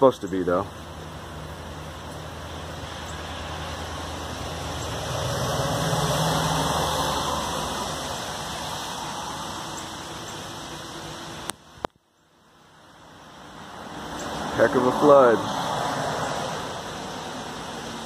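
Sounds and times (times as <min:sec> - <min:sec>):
engine humming: 0:00.0 - 0:18.0
rushing noise: 0:00.8 - 0:11.7.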